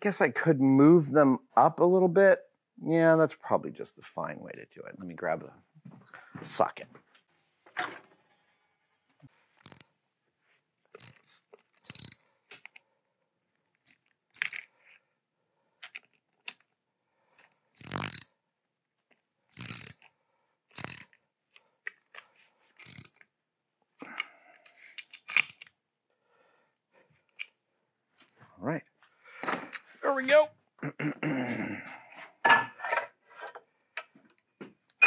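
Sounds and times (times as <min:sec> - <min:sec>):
socket wrench clicking: 0:09.6 - 0:09.8, 0:11.0 - 0:12.2, 0:17.8 - 0:18.3, 0:19.5 - 0:20.1, 0:20.7 - 0:21.2, 0:22.8 - 0:23.2, 0:25.0 - 0:25.7.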